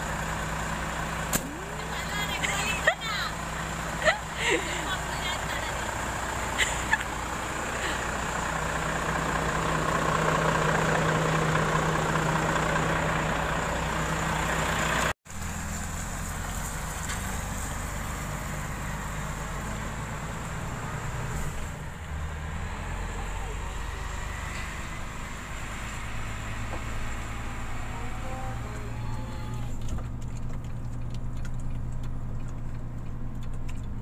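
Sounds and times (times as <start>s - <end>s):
truck diesel engine droning: 0.0s - 34.0s.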